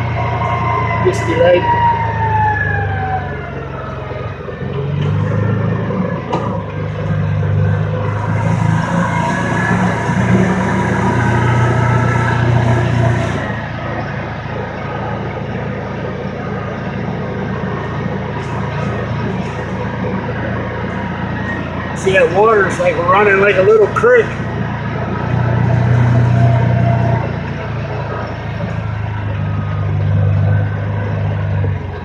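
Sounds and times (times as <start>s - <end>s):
engine revving while riding: 0.0s - 32.0s.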